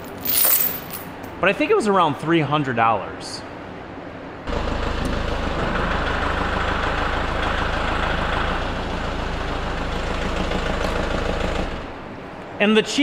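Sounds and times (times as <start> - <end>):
tractor diesel engine running: 4.5 - 12.0.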